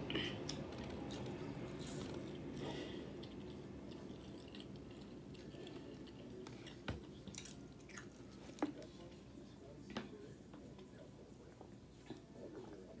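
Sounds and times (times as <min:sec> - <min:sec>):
chewing food: 0:00.5 - 0:09.2.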